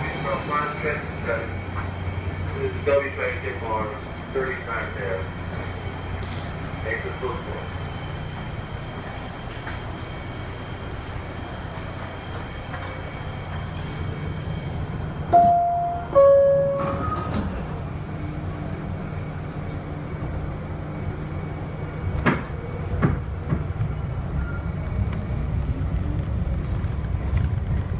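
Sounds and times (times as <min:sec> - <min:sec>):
subway car humming: 0:00.0 - 0:27.9
two-tone door chime: 0:15.3 - 0:17.4.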